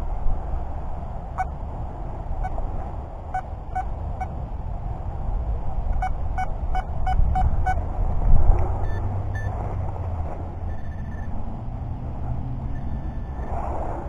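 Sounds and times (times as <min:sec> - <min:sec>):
steady low rumble: 0:00.0 - 0:14.0
metal detector beeps: 0:06.0 - 0:07.8, 0:08.8 - 0:09.6, 0:10.6 - 0:11.4, 0:12.6 - 0:13.5.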